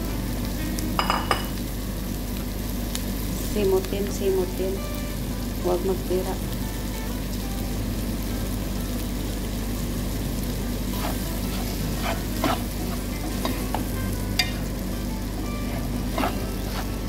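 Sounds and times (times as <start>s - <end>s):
vegetables sizzling in a pan: 0.0s - 17.0s
spatula scraping and knocking pan: 10.9s - 17.0s.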